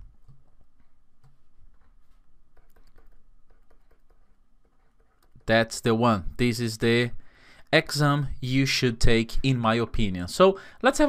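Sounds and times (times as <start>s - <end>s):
stylus tapping on drawing tablet: 2.5s - 5.5s.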